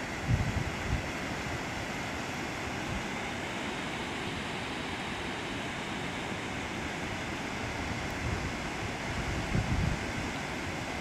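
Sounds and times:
wind on microphone: 0.0s - 1.6s, 7.7s - 10.8s
distant rushing water: 0.0s - 11.0s.

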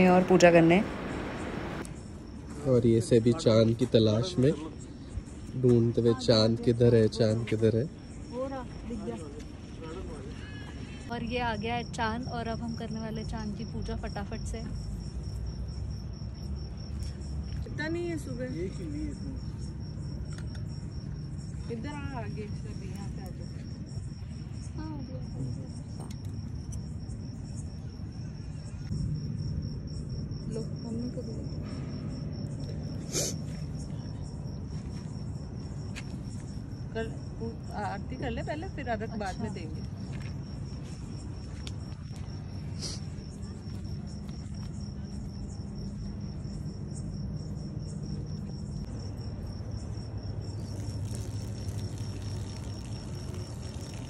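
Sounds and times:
low background rumble: 0.0s - 2.0s
low steady hum: 0.0s - 2.3s
crickets chirping: 0.0s - 54.0s.

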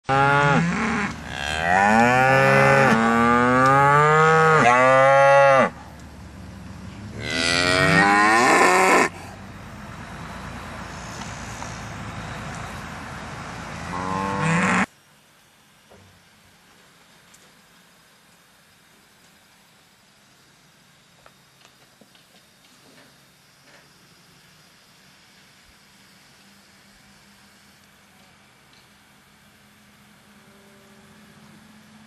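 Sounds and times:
outdoor background hiss: 0.0s - 32.0s
cattle mooing: 0.1s - 5.8s, 7.2s - 9.1s, 13.9s - 14.9s.

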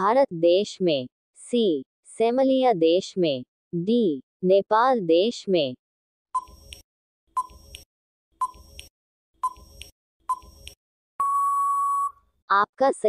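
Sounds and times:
long steady beep: 11.2s - 12.2s
short beeps: 11.2s - 12.2s.

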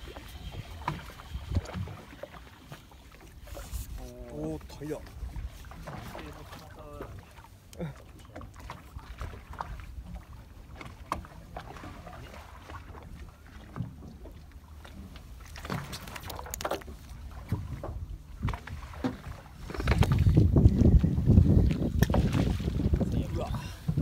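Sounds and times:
boat engine rumble: 0.0s - 24.0s
fishing tackle clicks and knocks: 15.6s - 17.1s, 19.7s - 20.4s, 21.7s - 22.3s.

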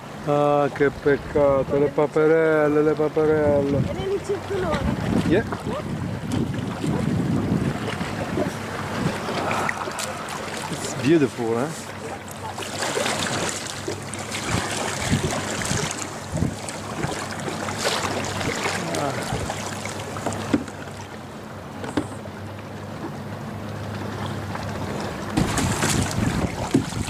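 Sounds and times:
paddle blades splashing: 0.0s - 27.0s
water lapping at hull: 0.0s - 27.0s
wind buffeting microphone: 3.2s - 11.7s, 14.3s - 17.4s, 18.2s - 19.7s, 25.3s - 27.0s
steady low hum: 5.9s - 21.5s.

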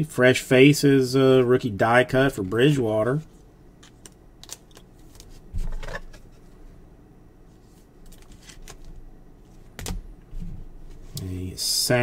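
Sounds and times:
cards sliding and flipping: 7.6s - 8.9s.

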